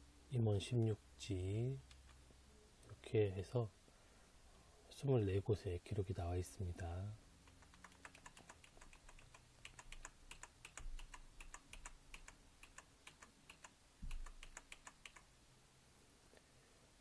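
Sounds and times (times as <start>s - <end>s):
keyboard keys clicking: 7.5s - 15.3s.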